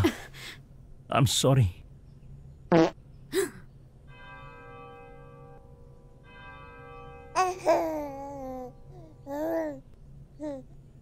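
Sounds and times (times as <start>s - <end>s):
baby babbling: 7.4s - 10.8s.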